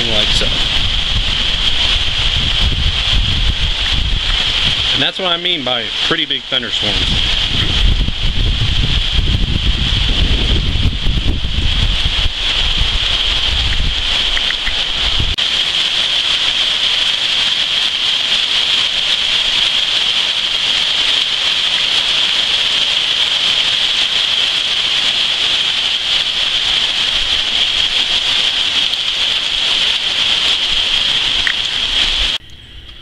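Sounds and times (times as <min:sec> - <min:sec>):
low rumble: 0:00.0 - 0:05.0, 0:06.9 - 0:15.4
heavy rain pouring: 0:00.0 - 0:33.0.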